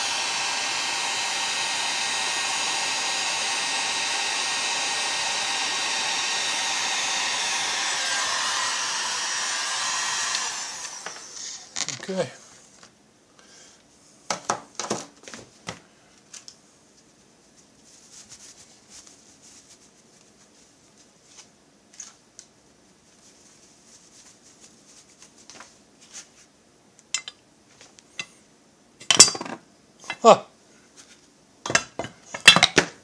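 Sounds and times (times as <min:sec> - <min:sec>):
heat gun blowing: 0:00.0 - 0:11.8.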